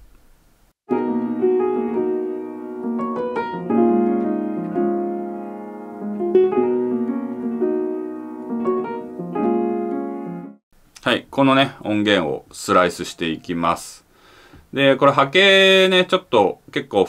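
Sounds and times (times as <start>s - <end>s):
sustained keyboard chords: 0.9s - 10.6s.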